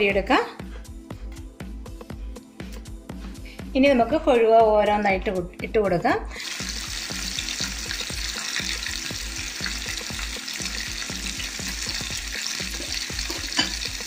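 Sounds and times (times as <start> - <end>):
fish sizzling in hot oil: 6.3 - 14.0.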